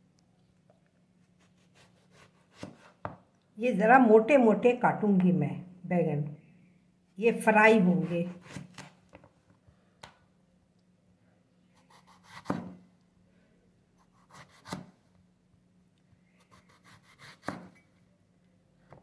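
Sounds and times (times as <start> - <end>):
knife slicing eggplant: 1.3 - 3.2, 7.8 - 9.0, 11.8 - 12.8, 14.0 - 15.0, 16.4 - 17.8.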